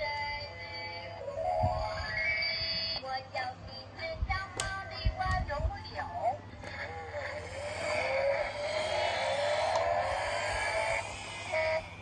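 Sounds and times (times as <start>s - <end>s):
toy engine sound effect whine: 0.0s - 3.0s, 6.6s - 12.0s.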